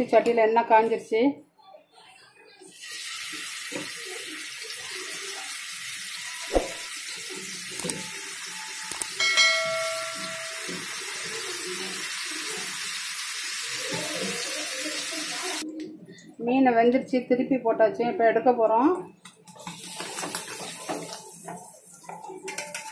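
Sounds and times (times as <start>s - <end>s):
fish frying in hot oil: 2.8s - 15.6s, 19.5s - 22.9s
short ringing chime: 9.2s - 11.0s.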